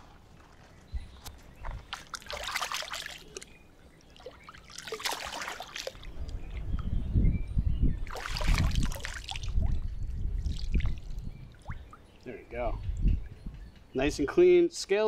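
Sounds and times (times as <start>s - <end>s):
fish splashing in water: 1.9s - 3.5s, 4.1s - 6.2s, 8.1s - 9.6s.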